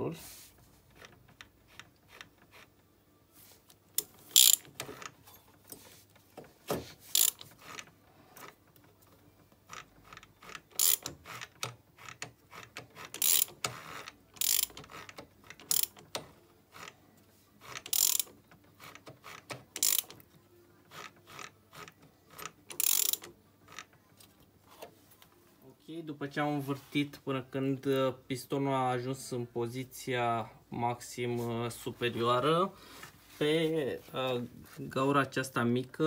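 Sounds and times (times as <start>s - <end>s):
metallic clicking of wrench: 4.0s - 5.2s, 7.1s - 7.8s, 9.7s - 17.0s, 17.7s - 20.2s, 21.0s - 23.9s.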